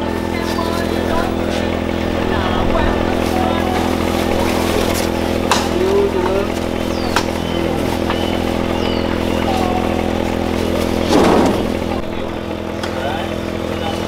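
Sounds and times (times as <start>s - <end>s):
small engine running: 0.0s - 14.0s
loud rush of noise: 0.8s - 12.7s.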